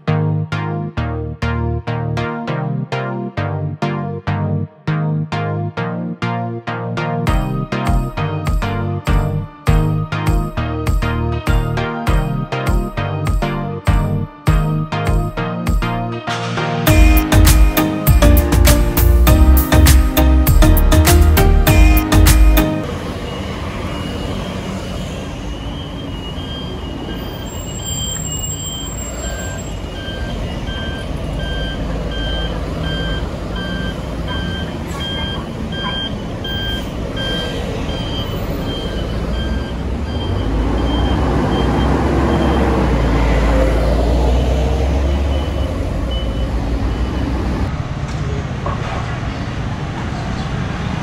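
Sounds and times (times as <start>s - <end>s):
city street traffic: 0.0s - 51.0s
heavy engine rumble: 21.6s - 50.3s
electronic warning beep: 23.2s - 24.7s, 25.5s - 42.8s, 45.0s - 47.4s.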